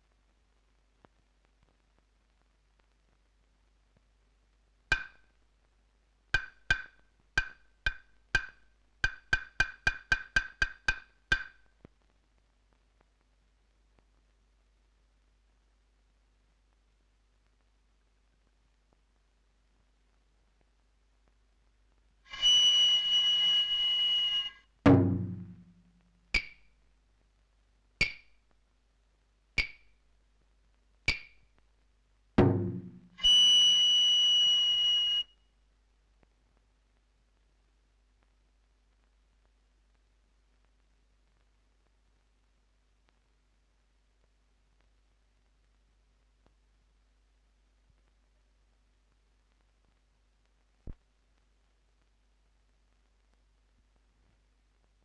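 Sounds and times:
wooden clappers clacking: 6.4s - 11.5s.

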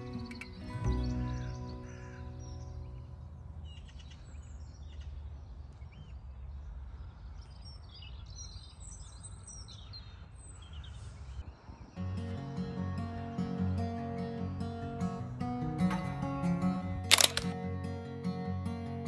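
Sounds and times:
acoustic guitar music: 0.0s - 3.7s, 12.0s - 19.0s
small birds chirping: 0.0s - 13.4s.

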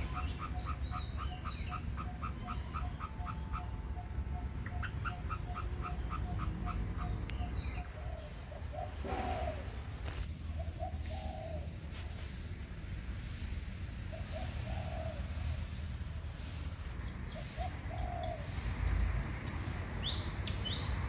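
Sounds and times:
small mammal chirping: 0.0s - 9.0s
rustle: 6.5s - 21.0s.

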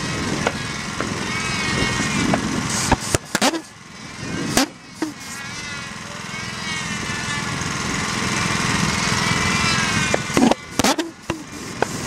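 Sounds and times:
pulse jet engine buzzing: 0.0s - 12.0s
sharp engine pops: 2.3s - 3.7s, 10.1s - 12.0s.

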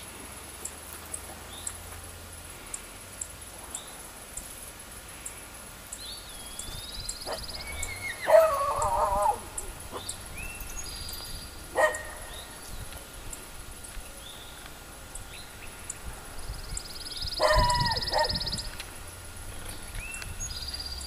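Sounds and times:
loud wavering animal call: 7.3s - 10.2s, 17.4s - 18.7s.

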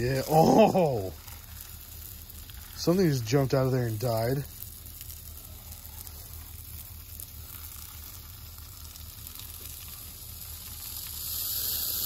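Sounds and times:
aerosol spray hissing: 11.1s - 12.0s.

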